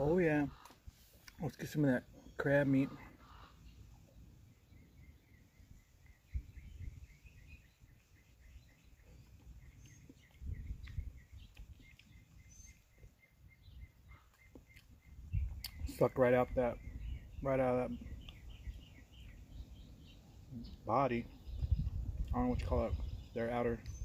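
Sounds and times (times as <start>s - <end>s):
bird chirping rapidly: 2.2s - 24.0s
low rumbles on microphone: 6.2s - 7.8s, 10.1s - 12.4s, 15.0s - 19.7s, 20.5s - 24.0s.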